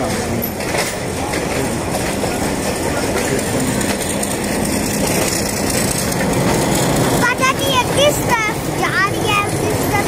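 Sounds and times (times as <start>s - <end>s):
train running along track: 0.0s - 10.0s.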